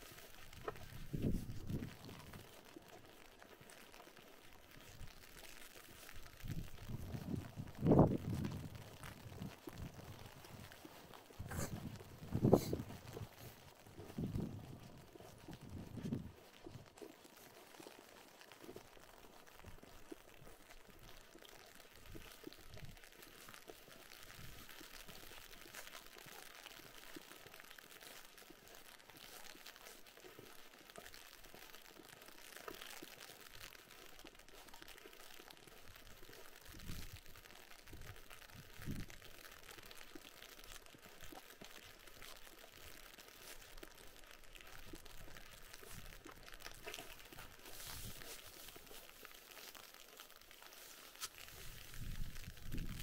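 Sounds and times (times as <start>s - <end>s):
icy rain crackling: 0.0s - 53.0s
footsteps crunching on snow: 4.8s - 17.9s, 44.8s - 52.9s.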